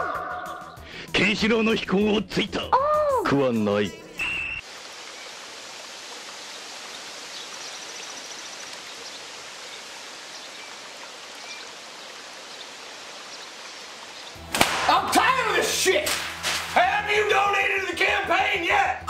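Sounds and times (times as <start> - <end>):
faint chirps: 4.2 - 5.4
stream water rushing: 4.2 - 16.0.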